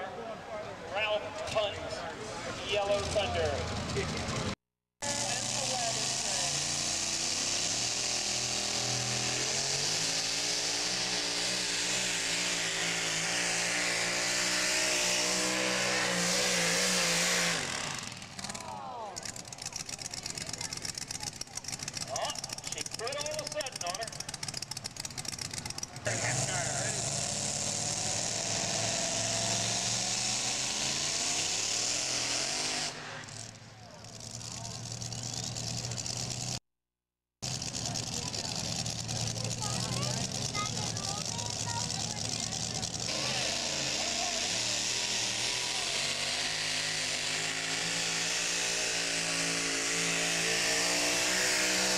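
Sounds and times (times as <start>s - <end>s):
truck engine revving hard: 2.6s - 36.6s, 37.4s - 51.9s
truck engine idling: 18.0s - 27.4s, 37.4s - 47.8s.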